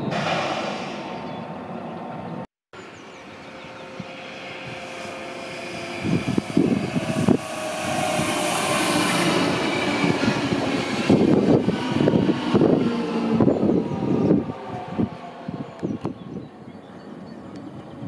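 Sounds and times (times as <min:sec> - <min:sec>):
train wheels rushing on rail: 0:03.3 - 0:16.2.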